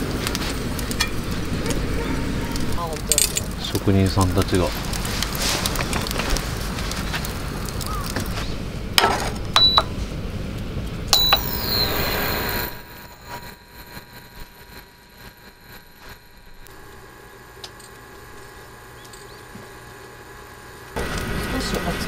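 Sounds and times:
wood fire crackling: 0:00.0 - 0:22.0
short high electronic beep: 0:11.2 - 0:13.6.

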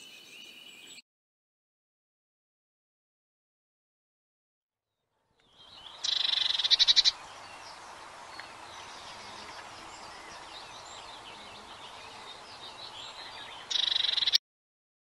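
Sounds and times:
bird singing with a fast trill: 0:00.0 - 0:01.0, 0:05.3 - 0:14.4
faint bird chirps: 0:05.3 - 0:14.4.

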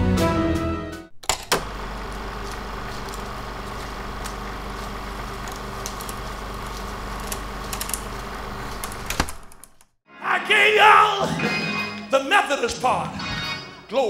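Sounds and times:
faint clicks and crackle: 0:01.2 - 0:09.9
film projector whirring: 0:01.2 - 0:09.9.

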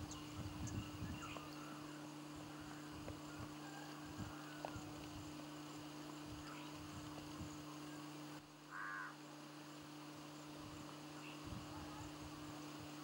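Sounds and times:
low electrical hum: 0:00.0 - 0:13.0
footsteps on dirt path: 0:03.0 - 0:05.3.

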